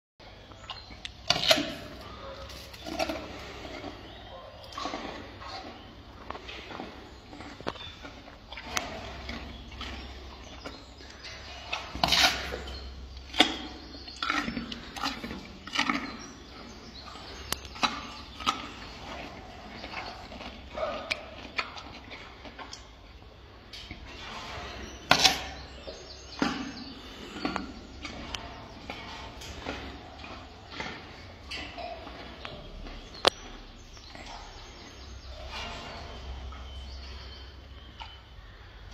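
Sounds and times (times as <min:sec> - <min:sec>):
gorilla chewing wet crunches: 0:00.4 - 0:38.9.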